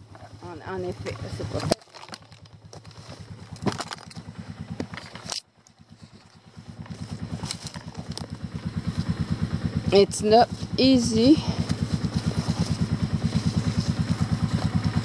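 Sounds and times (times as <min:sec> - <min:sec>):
atv engine running: 0:00.0 - 0:15.0
knocks and clatter: 0:00.9 - 0:05.4.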